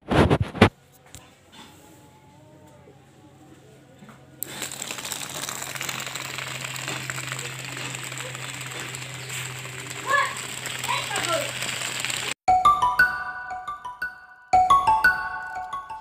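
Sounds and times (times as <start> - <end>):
small gear motor running: 4.4 - 12.4.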